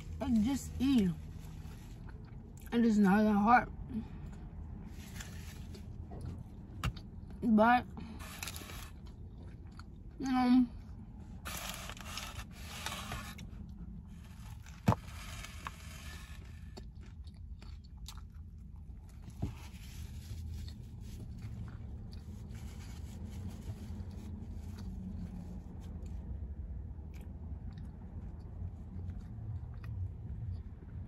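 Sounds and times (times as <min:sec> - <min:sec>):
food packaging rustling: 0:08.2 - 0:09.0, 0:11.5 - 0:13.4.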